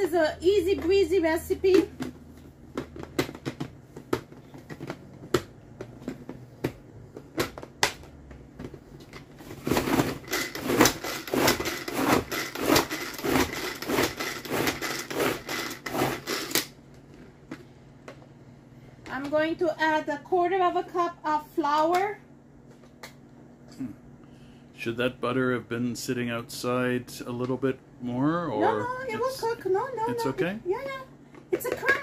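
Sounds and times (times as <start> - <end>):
pull-cord chopper zipping rattle: 9.6 - 16.7.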